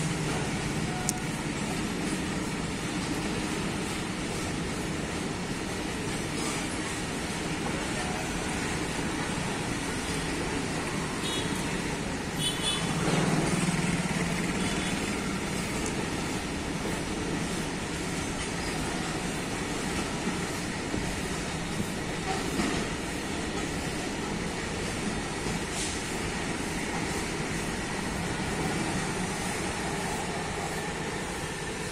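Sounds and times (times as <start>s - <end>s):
train wheels on rails: 0.0s - 31.9s.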